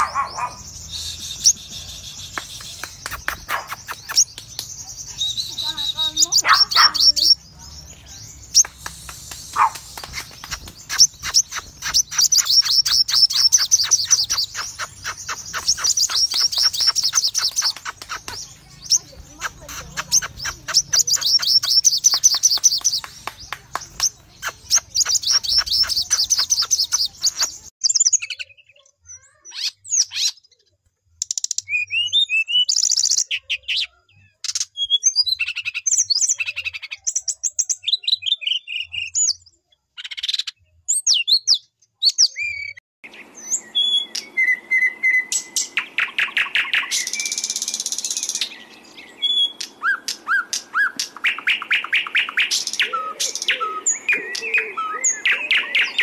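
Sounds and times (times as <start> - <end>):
songbird calls: 0.0 - 27.7, 42.2 - 56.0.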